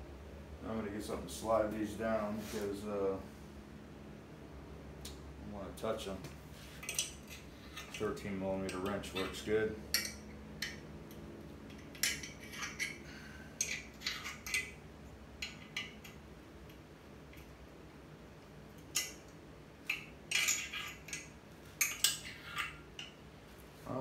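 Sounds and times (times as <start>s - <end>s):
wrench clinking on metal studs: 6.8s - 10.8s, 11.7s - 14.8s, 15.4s - 17.5s, 18.8s - 23.2s.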